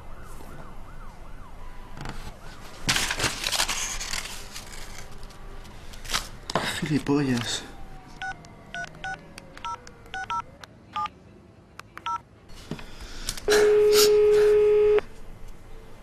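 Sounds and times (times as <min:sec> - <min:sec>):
phone keypad tones: 0:08.2 - 0:10.4, 0:12.0 - 0:12.2
phone ringback tone: 0:08.2 - 0:10.4.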